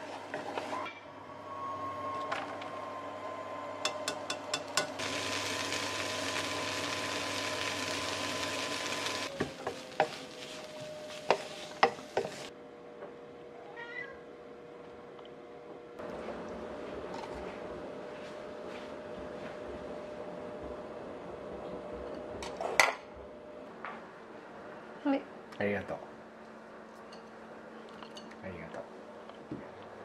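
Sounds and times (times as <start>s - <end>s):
potatoes sizzling in frying pan: 3.9s - 12.5s
cat meowing: 13.6s - 14.2s.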